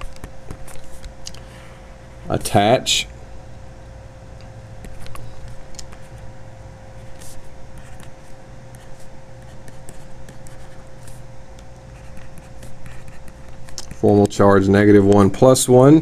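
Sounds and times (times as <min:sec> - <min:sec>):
background hum: 0:00.0 - 0:16.0.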